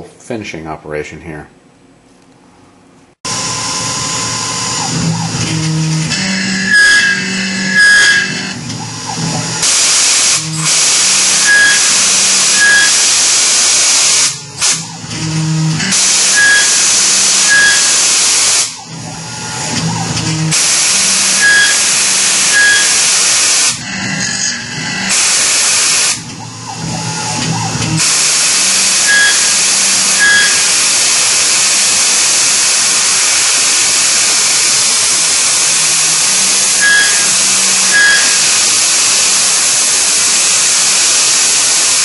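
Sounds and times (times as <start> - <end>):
milling machine spindle running: 3.3 - 42.0
air blow gun hissing: 9.6 - 15.1, 15.8 - 18.9, 20.5 - 23.8, 25.0 - 26.2, 27.3 - 42.0.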